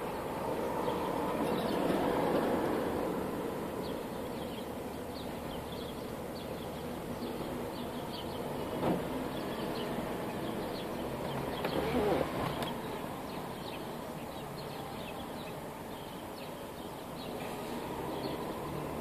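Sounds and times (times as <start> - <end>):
sparrows chirping: 0.0 - 19.0
traffic hum: 0.0 - 19.0
vehicle passing: 17.2 - 19.0.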